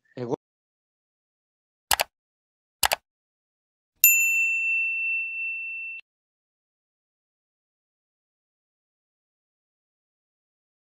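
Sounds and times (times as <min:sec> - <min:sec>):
quick clicks: 0:01.9 - 0:02.1, 0:02.8 - 0:03.0
high bell ding: 0:04.0 - 0:06.1.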